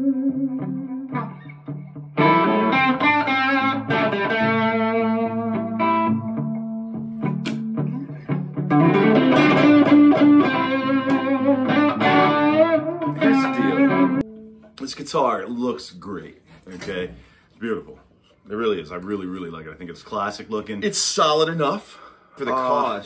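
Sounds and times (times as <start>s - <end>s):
electric guitar playing: 0.0s - 14.8s.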